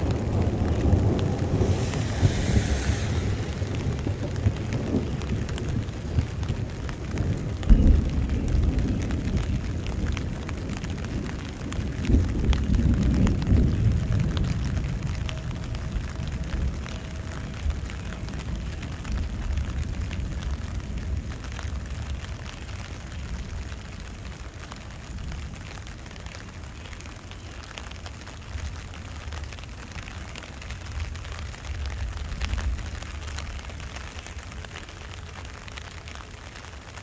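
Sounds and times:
low rumble of thunder: 0.0s - 27.2s
raindrops ticking close: 0.0s - 37.0s
steady rain: 0.0s - 37.0s.

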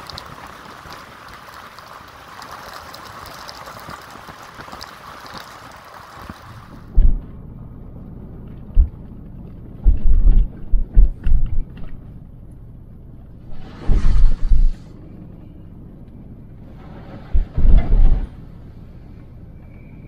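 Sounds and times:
low road rumble inside car: 6.6s - 20.0s
loud low thuds from bumps: 6.9s - 7.3s, 8.7s - 9.2s, 9.8s - 12.0s, 17.3s - 18.3s.

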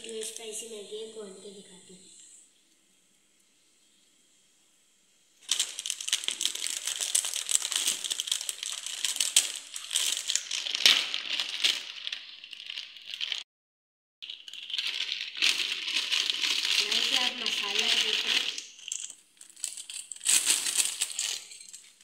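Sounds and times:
plastic wrapper crinkling: 0.0s - 0.6s, 5.4s - 13.4s, 14.2s - 22.0s
scissors cutting plastic: 5.4s - 12.0s
rustling of shaken contents: 5.4s - 13.4s, 14.2s - 22.0s.

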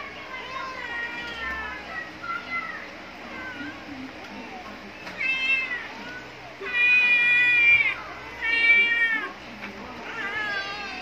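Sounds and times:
cat meowing: 6.6s - 9.3s.

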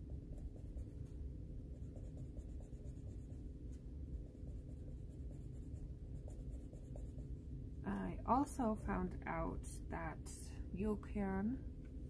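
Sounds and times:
pencil scratching on paper: 0.3s - 1.1s, 1.7s - 3.4s, 4.2s - 7.3s.

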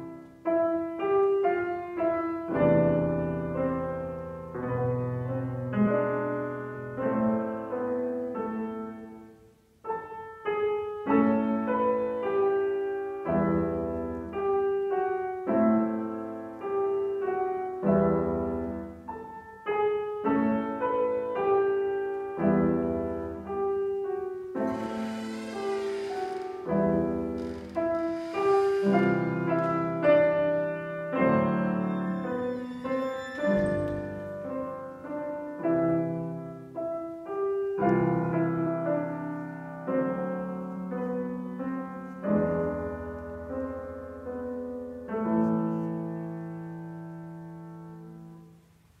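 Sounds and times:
grand piano playing chords: 0.0s - 49.0s.

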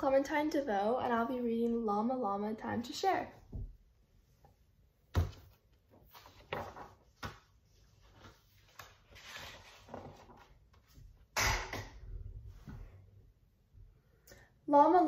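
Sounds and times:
book pages rustling: 5.2s - 11.1s.

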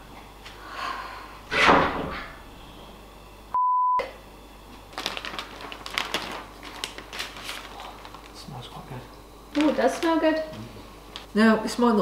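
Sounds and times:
censor bleep: 3.6s - 4.1s.

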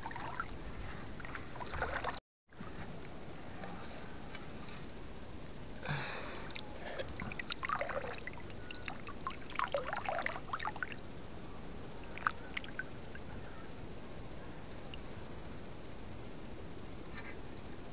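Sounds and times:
stream water splashing by hand: 1.2s - 2.2s, 6.5s - 11.0s, 12.1s - 13.0s
water drips: 6.5s - 11.0s, 12.0s - 13.3s.

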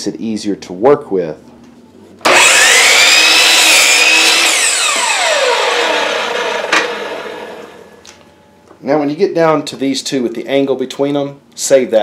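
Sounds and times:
miter saw whining and cutting wood: 2.2s - 7.9s
saw blade winding down: 2.2s - 7.9s.

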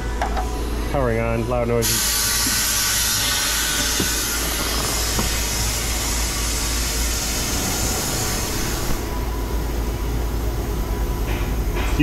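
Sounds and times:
low machine hum: 0.0s - 12.0s
vacuum rig rushing hiss: 1.8s - 10.3s.

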